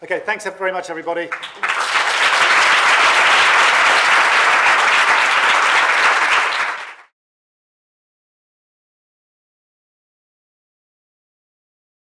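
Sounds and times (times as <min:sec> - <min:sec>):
audience applauding: 0:01.3 - 0:07.1.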